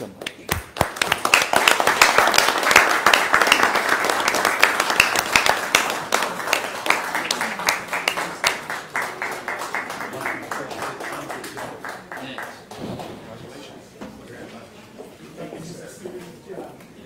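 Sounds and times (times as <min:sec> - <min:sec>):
crowd applauding: 0:00.2 - 0:13.2.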